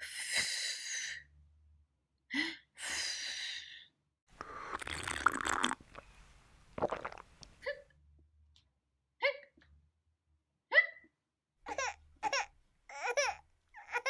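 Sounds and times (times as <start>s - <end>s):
breathy sipping and slurping: 4.4s - 6.2s, 6.8s - 7.3s.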